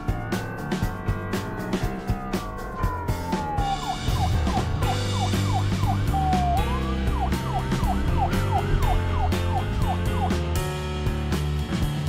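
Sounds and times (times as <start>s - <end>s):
background music: 0.0s - 12.0s
yelping police siren: 1.9s - 10.4s.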